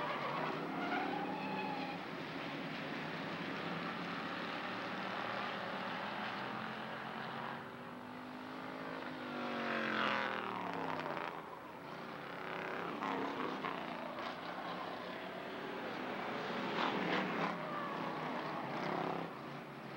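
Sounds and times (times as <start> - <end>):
race car engines at speed: 0.0 - 19.9
car passing by: 12.7 - 19.9.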